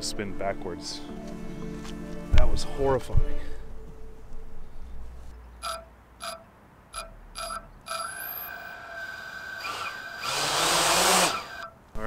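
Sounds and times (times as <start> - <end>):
short electronic beeps: 5.6 - 9.0
quadcopter motors whining: 7.4 - 11.8.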